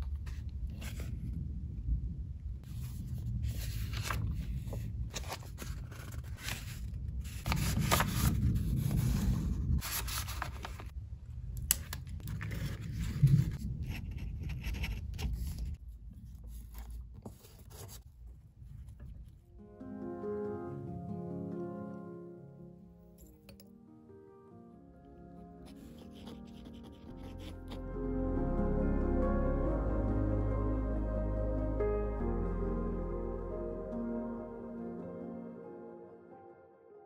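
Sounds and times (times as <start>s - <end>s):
paper rustling and scraping: 0.0s - 1.3s, 2.6s - 10.9s, 12.2s - 19.1s, 25.6s - 27.8s.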